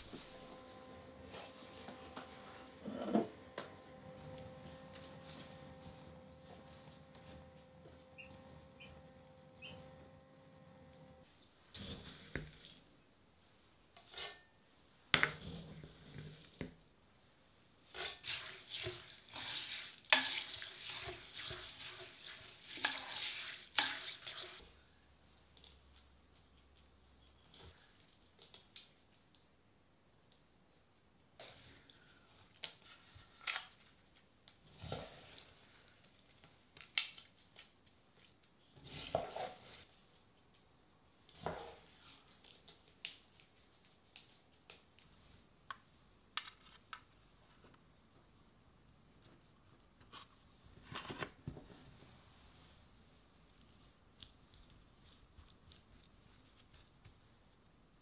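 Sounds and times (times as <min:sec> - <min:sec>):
wooden spoon scraping: 0:00.0 - 0:12.9, 0:38.8 - 0:40.0.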